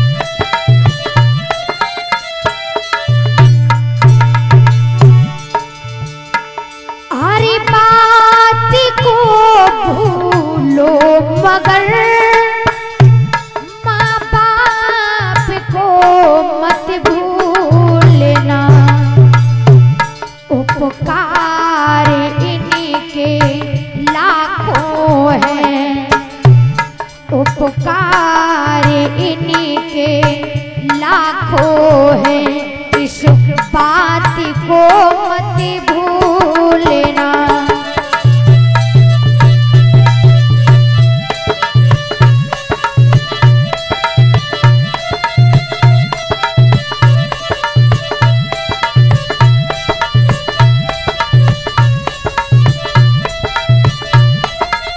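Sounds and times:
hand drum rhythm: 0:00.0 - 0:54.9
woman singing devotional song: 0:07.1 - 0:19.4, 0:20.4 - 0:38.4.

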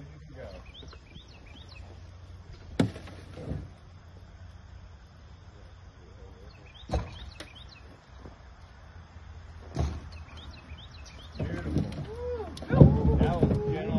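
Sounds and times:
low outdoor rumble: 0:00.0 - 0:13.9
sharp knocks: 0:06.8 - 0:07.3.

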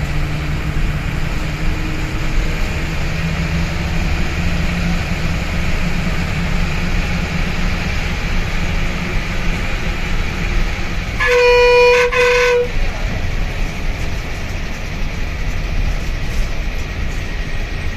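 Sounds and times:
bus engine and road noise: 0:00.0 - 0:17.9
bus horn blasts: 0:11.0 - 0:13.1.

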